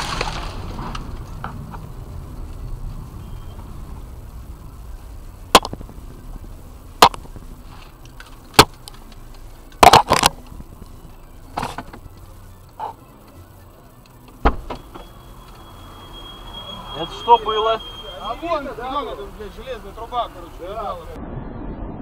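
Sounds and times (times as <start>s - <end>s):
steady high tone: 12.4s - 21.2s.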